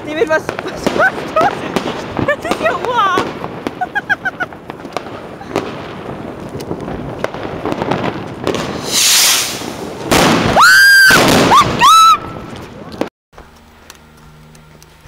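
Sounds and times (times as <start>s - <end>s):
loud firework bangs: 0.0s - 13.1s
firework crackles and pops: 0.0s - 15.0s
shrill firework whistles: 8.6s - 12.5s
high hiss: 8.7s - 10.0s.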